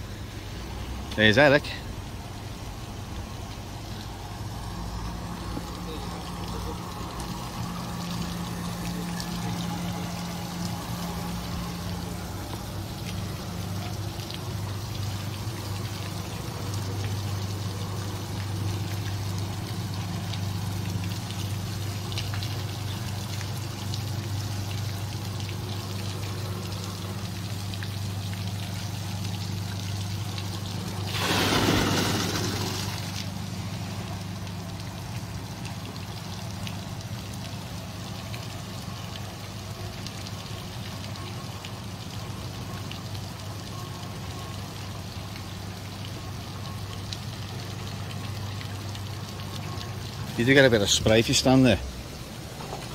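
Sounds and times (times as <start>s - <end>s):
low steady hum: 0.0s - 52.9s
water pouring and trickling: 0.0s - 52.9s
bucket tipping water splash: 31.0s - 33.3s.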